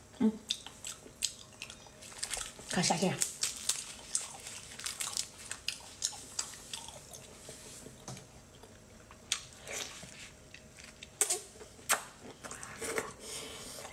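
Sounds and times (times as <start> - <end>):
wet chewing: 0.5 - 11.3.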